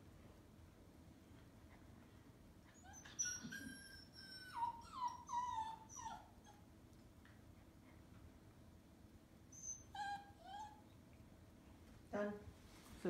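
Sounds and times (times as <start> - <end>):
puppy whining: 2.6 - 6.8, 9.5 - 11.2.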